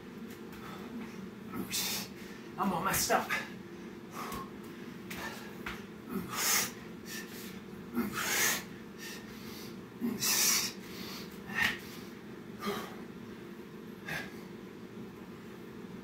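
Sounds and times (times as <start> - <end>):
man breathing hard: 0.5 - 2.6, 3.3 - 13.1, 14.0 - 14.6.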